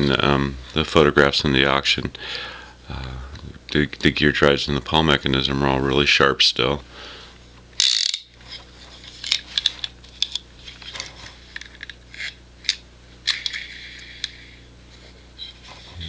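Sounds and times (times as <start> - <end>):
fishing reel metallic clicks: 7.8 - 8.3.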